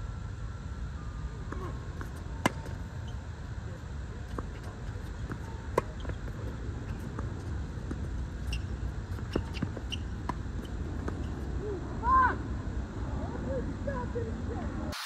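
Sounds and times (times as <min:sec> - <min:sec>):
steady low rumble: 0:00.0 - 0:14.9
tennis ball bouncing: 0:01.5 - 0:02.8, 0:04.3 - 0:11.4
tennis rackets hitting ball: 0:01.5 - 0:02.8, 0:04.3 - 0:11.4.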